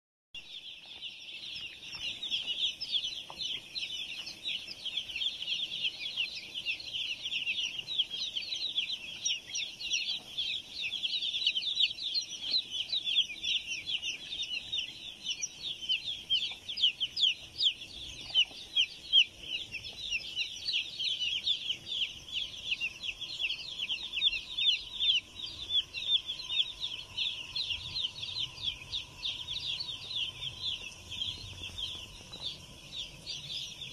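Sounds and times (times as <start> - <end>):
chicks peeping: 0.4 - 33.9.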